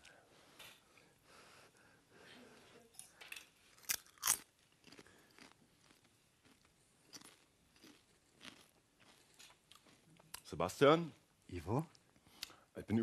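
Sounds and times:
crunchy snack chewing: 0:03.8 - 0:10.5.

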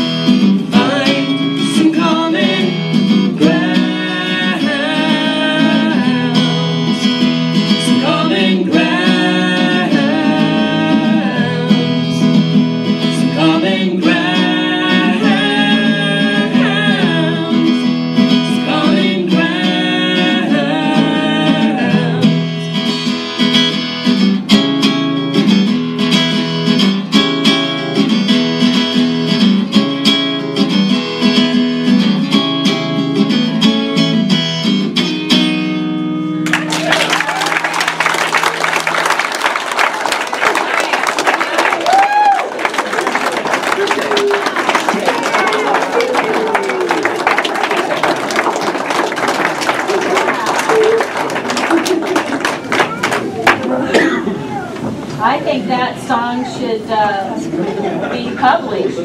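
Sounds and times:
acoustic guitar strumming: 0:00.0 - 0:36.9, 0:42.5 - 0:59.0
woman singing: 0:13.3 - 0:17.8, 0:18.5 - 0:22.6.

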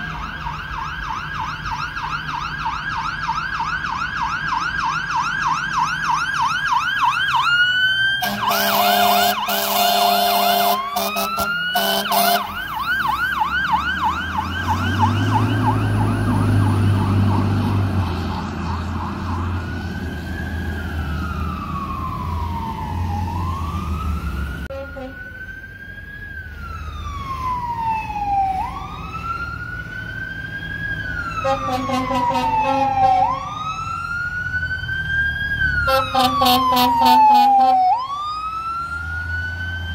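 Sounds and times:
fire engine siren: 0:00.0 - 0:39.9
truck engine rumbling: 0:00.0 - 0:39.9
air horn blasts: 0:08.2 - 0:12.6, 0:24.7 - 0:25.3, 0:31.4 - 0:33.4, 0:35.9 - 0:38.0.

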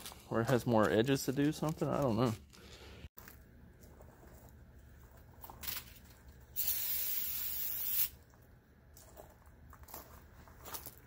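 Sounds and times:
aerosol spray hissing: 0:06.6 - 0:08.2.

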